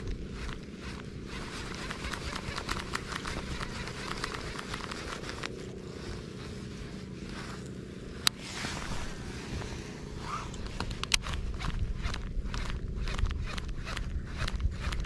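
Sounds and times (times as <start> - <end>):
reel click: 0.0 - 5.6, 10.2 - 15.0
fishing reel ticking: 0.0 - 5.7, 10.2 - 15.0.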